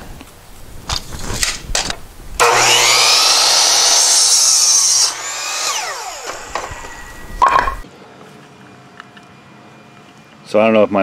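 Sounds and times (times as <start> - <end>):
miter saw cutting wood: 2.4 - 7.8.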